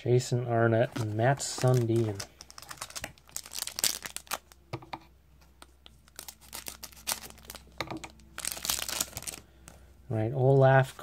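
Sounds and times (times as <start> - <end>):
foil wrapper crinkling and tearing: 0.9 - 4.6, 6.0 - 9.5.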